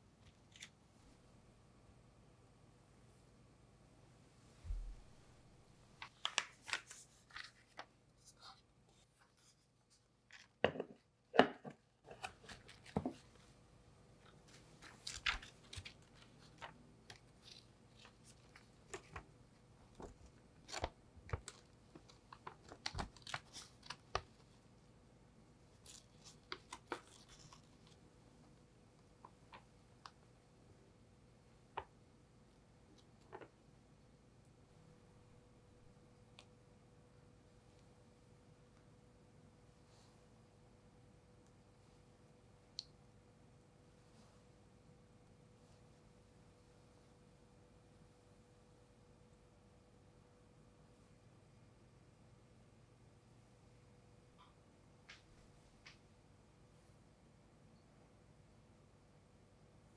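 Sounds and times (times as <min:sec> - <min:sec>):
parchment paper crinkling: 0:00.2 - 0:00.8, 0:06.0 - 0:10.6, 0:12.0 - 0:13.5, 0:14.2 - 0:24.6, 0:25.7 - 0:28.1.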